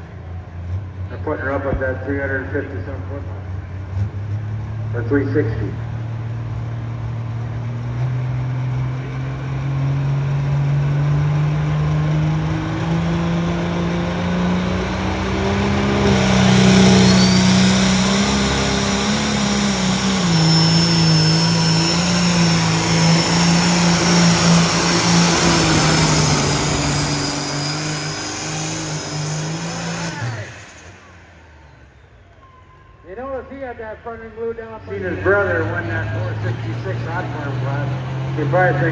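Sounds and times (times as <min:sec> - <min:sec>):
tractor engine at high revs: 0:02.8 - 0:32.6, 0:34.9 - 0:38.9
high whistle falling in pitch: 0:16.8 - 0:17.9.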